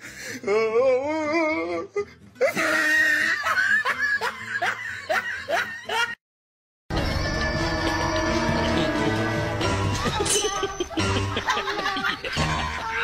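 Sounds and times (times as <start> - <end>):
person laughing heartily: 2.4 - 6.2, 8.0 - 13.0.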